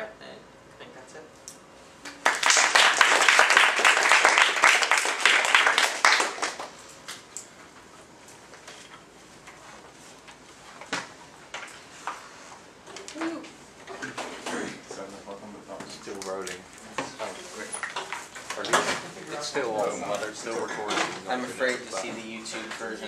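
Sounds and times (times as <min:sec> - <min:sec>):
audience applauding: 0:02.2 - 0:06.8.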